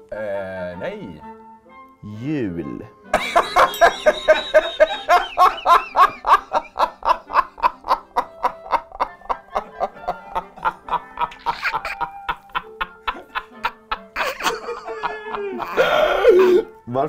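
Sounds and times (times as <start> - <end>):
man laughing hard: 3.2 - 16.7.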